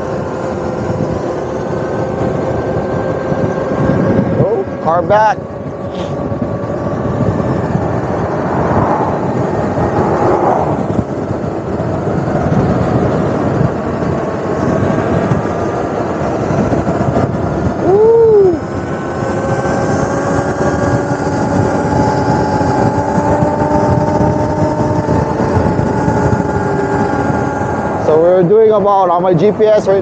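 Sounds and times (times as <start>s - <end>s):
short rising and falling tone: 0.0s - 12.0s
faint electric motor whine: 0.0s - 30.0s
wind rush and road noise: 0.0s - 30.0s.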